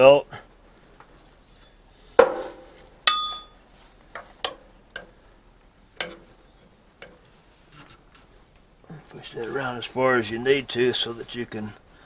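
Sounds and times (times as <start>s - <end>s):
sharp metal clank: 2.2s - 3.6s
ringing metallic clink: 3.0s - 3.6s.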